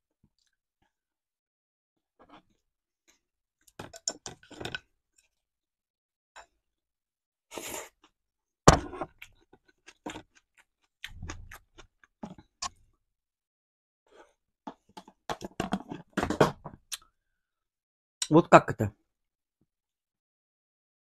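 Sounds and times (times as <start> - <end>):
chewing: 9.2 - 12.4.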